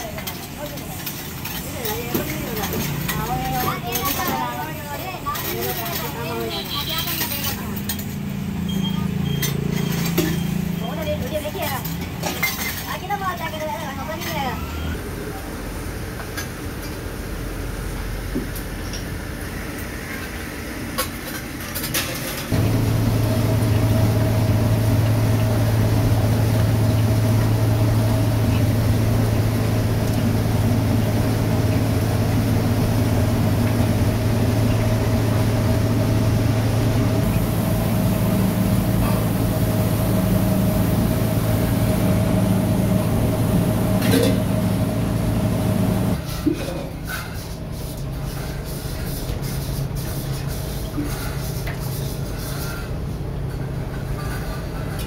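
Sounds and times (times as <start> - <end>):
workshop noise: 0.0 - 55.0
low machine hum: 22.5 - 46.3.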